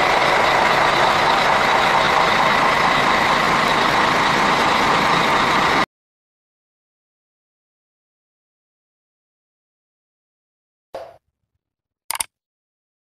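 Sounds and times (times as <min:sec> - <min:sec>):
bus engine rushing: 0:00.0 - 0:05.9.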